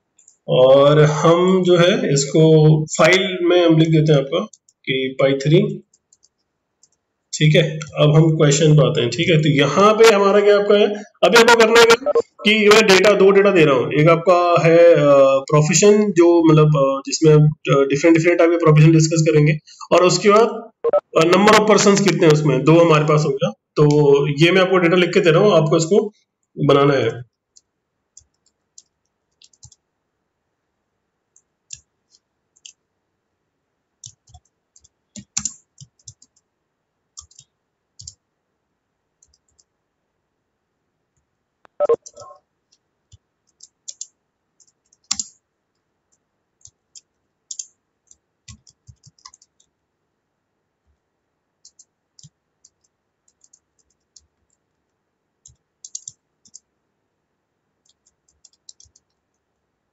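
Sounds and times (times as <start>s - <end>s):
computer keyboard typing: 5.8s - 7.0s, 27.5s - 29.8s, 31.4s - 32.8s, 34.0s - 36.5s, 37.2s - 38.2s, 39.2s - 39.7s, 41.8s - 45.4s, 46.6s - 49.7s, 51.6s - 54.6s, 55.4s - 56.7s, 57.8s - 59.2s.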